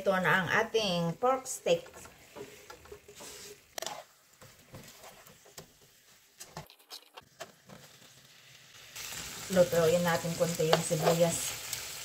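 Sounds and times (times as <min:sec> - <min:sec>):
tongs tapping a pan: 0:10.6 - 0:11.4.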